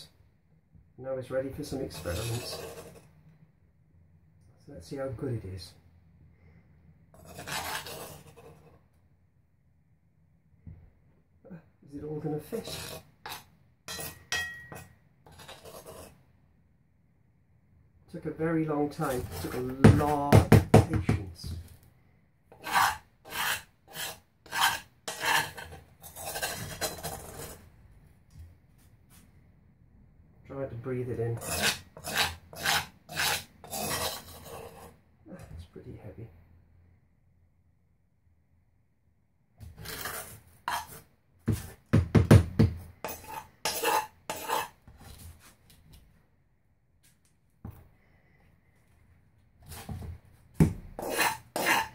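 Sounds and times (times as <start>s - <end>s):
metal spoon scraping powder in bowl: 1.7s - 3.1s, 7.2s - 8.8s, 12.2s - 16.2s, 19.0s - 20.3s, 22.5s - 27.6s, 31.3s - 35.0s, 39.6s - 41.7s, 43.0s - 45.2s, 51.0s - 51.9s.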